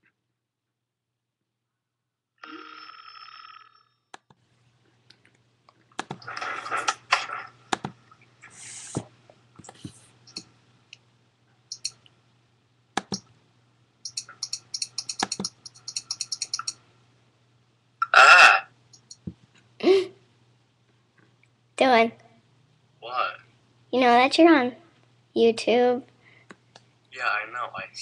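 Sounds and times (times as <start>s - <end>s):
mouse clicks and rustling: 11.7s - 12.1s, 14.0s - 16.8s
keyboard key clicks: 13.0s - 13.3s, 14.1s - 16.7s.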